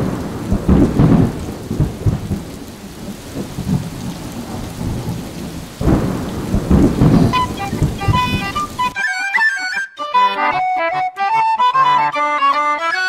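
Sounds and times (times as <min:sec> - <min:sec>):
rolling thunder: 0:00.0 - 0:09.0
steady rain: 0:00.0 - 0:09.0.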